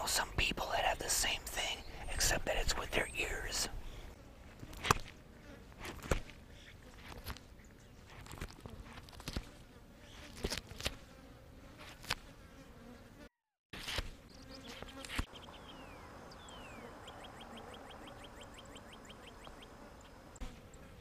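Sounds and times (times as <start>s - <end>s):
insects buzzing: 0.0s - 21.0s
beak clicking and snapping: 8.2s - 9.5s, 10.3s - 11.0s.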